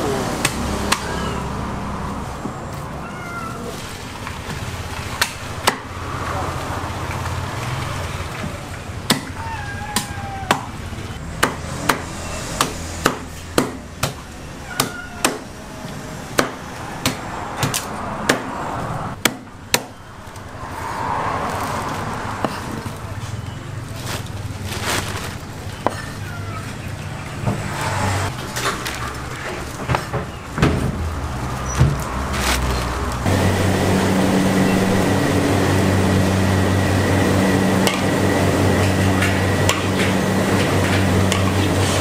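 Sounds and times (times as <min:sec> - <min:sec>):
cleaver chopping on wooden block: 0:11.4 - 0:14.2.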